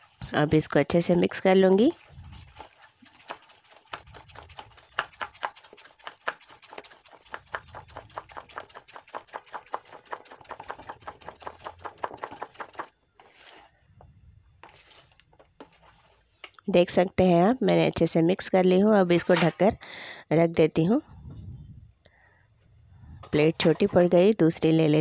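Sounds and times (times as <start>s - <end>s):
spoon beating batter in steel bowl: 1.2s - 12.8s.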